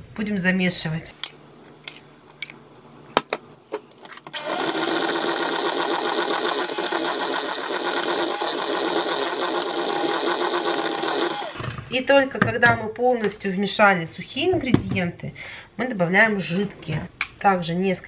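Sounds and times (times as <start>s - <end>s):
electric mixer running: 4.3s - 11.6s.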